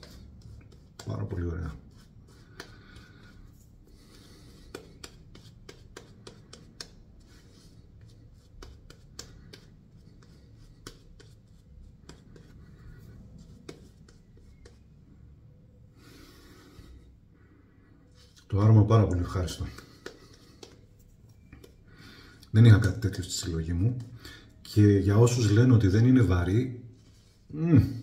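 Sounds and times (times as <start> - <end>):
shaving brush rubbing lather: 0.0 - 14.9.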